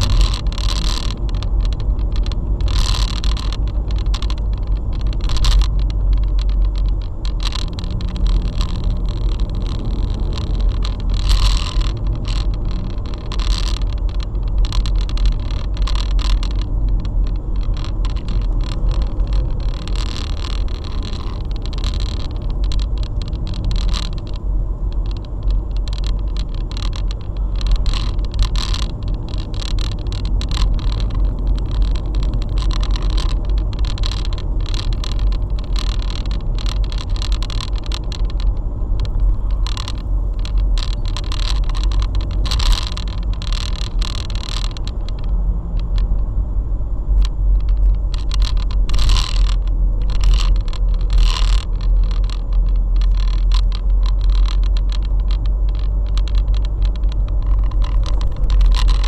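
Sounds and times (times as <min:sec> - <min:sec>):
car engine and tyre rumble: 0:00.0 - 0:59.0.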